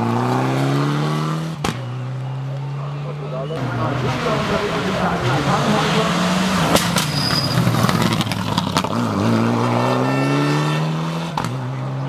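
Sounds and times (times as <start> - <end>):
rally car engine accelerating: 0.0 - 12.0.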